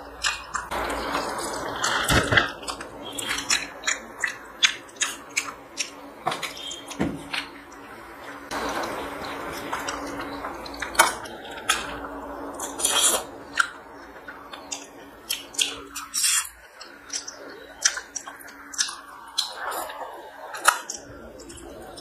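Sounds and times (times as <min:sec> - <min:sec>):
wet chewing and lip-smacking: 0:00.0 - 0:07.8, 0:09.5 - 0:22.0
faint steady hum: 0:00.0 - 0:22.0.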